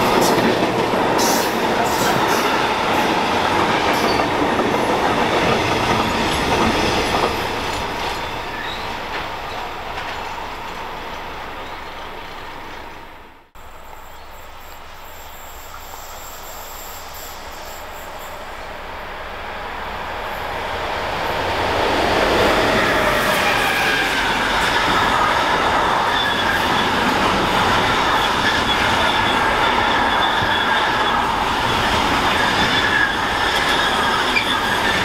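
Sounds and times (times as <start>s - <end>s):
freight train wagons rolling: 0.0s - 13.2s, 22.4s - 35.0s
approaching train rumble: 0.0s - 35.0s
squealing wheels: 1.2s - 4.4s, 5.6s - 12.7s, 22.5s - 35.0s.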